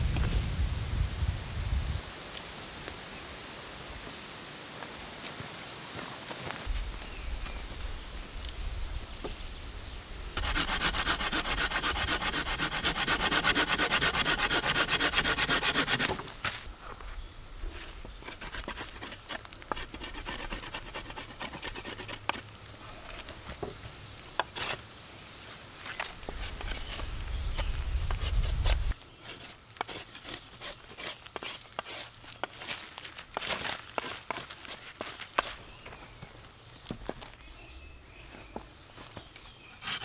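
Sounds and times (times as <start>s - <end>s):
knife scraping a stick: 10.4s - 16.3s, 17.6s - 23.2s, 24.4s - 24.8s, 25.8s - 32.8s, 33.4s - 35.7s, 39.7s - 40.0s
wood being rasped: 10.4s - 16.3s, 18.2s - 22.4s, 28.1s - 32.7s, 39.8s - 40.0s.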